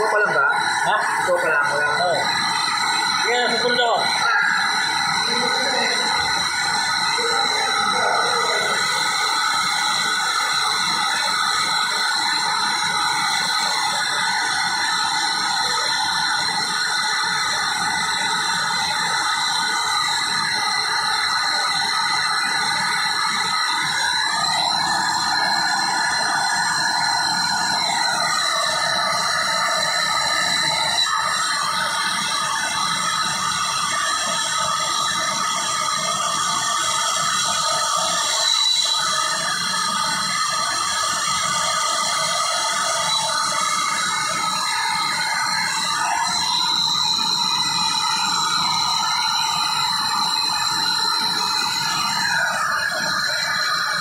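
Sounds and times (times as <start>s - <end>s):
gas torch flame hissing: 0.0s - 54.0s.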